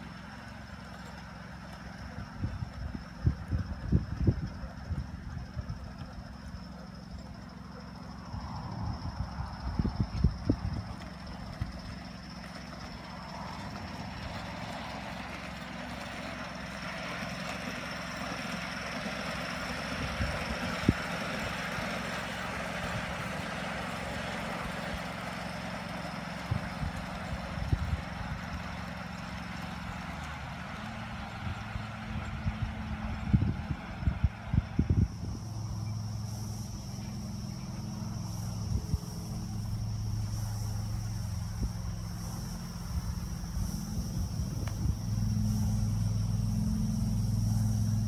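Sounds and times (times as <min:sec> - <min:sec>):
model steam locomotive rumble: 0:00.0 - 0:48.0.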